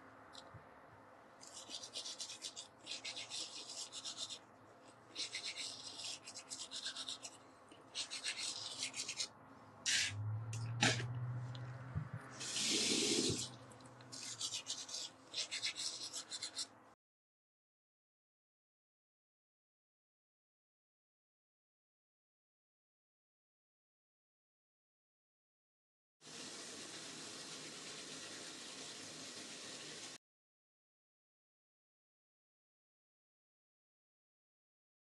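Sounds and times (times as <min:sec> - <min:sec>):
toothbrush scrubbing teeth: 0:01.4 - 0:04.4, 0:05.0 - 0:09.3, 0:12.4 - 0:16.7.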